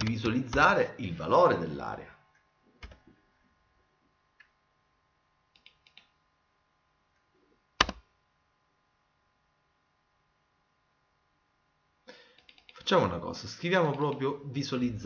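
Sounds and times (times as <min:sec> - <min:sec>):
keyboard and mouse clicks: 0:00.0 - 0:00.7, 0:02.8 - 0:03.1, 0:05.5 - 0:06.2, 0:07.8 - 0:08.1, 0:12.3 - 0:12.9, 0:13.8 - 0:14.3.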